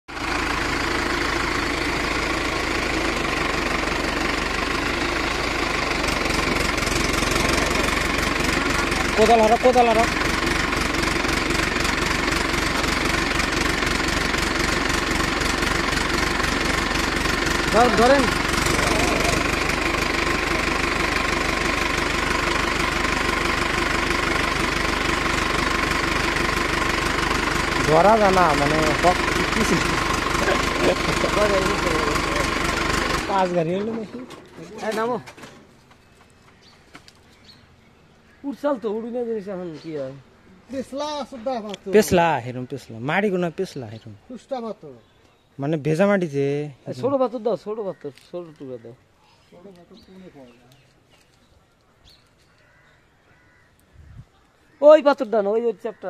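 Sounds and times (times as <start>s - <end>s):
tractor diesel engine idling: 0.1s - 44.9s.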